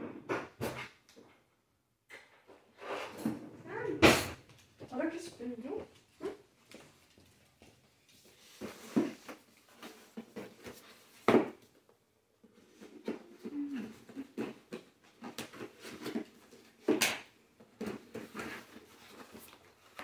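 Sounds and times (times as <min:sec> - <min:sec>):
cardboard boxes handled: 0:08.2 - 0:11.8, 0:17.6 - 0:20.0.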